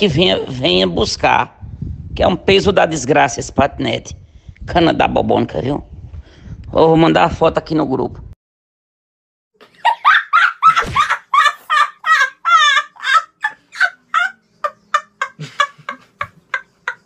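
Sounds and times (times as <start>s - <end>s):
person laughing in high squeals: 9.7s - 17.0s.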